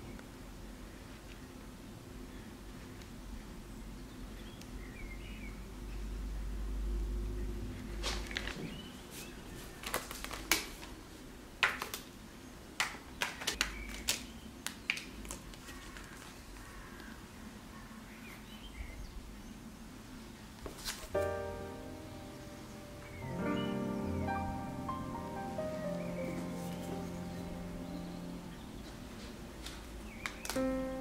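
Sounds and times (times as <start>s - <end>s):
chocolate sheets snapping: 9.8s - 11.0s, 12.8s - 16.3s, 29.6s - 30.7s.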